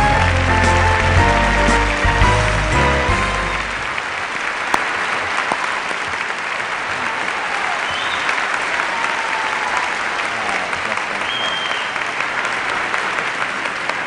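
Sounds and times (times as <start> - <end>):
music: 0.0 - 3.9
audience applauding: 0.0 - 14.0.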